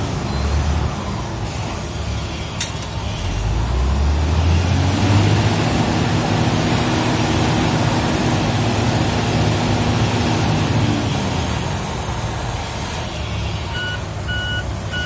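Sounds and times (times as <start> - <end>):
diesel engine revving: 3.0 - 15.0.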